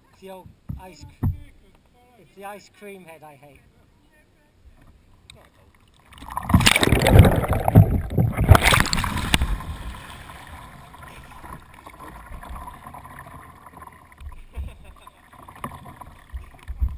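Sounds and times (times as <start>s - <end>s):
water lapping around boat: 4.8s - 16.9s
loud splashing water: 6.1s - 13.9s.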